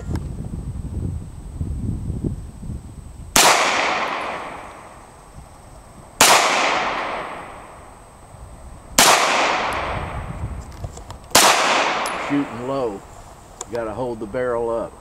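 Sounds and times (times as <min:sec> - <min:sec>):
pistol shots with long echo: 0:03.4 - 0:05.1, 0:06.2 - 0:07.9, 0:09.0 - 0:10.2, 0:11.3 - 0:12.6.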